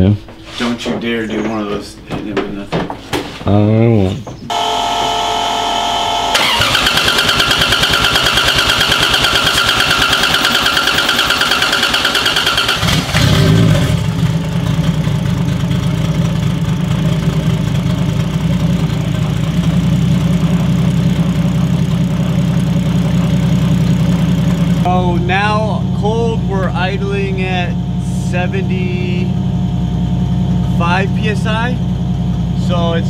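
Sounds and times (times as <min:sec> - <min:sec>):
engine idling: 0:04.5 - 0:33.0
starter whine: 0:04.5 - 0:33.0
starter cranking engine: 0:06.3 - 0:14.0.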